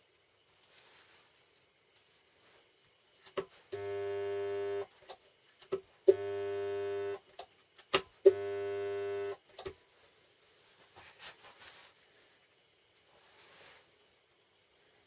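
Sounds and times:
spot welder transformer humming: 0:03.7 - 0:04.9, 0:06.1 - 0:07.2, 0:08.3 - 0:09.4.

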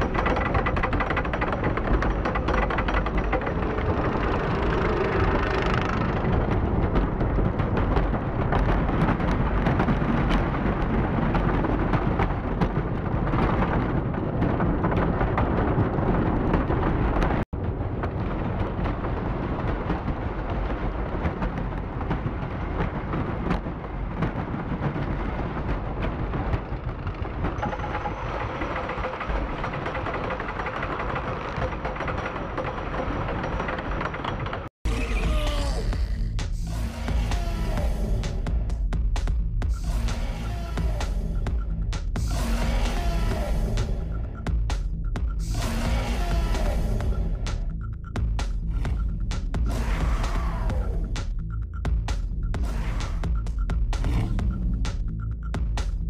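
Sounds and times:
loud rumbling over speakers: 0:34.8 - 0:56.0.

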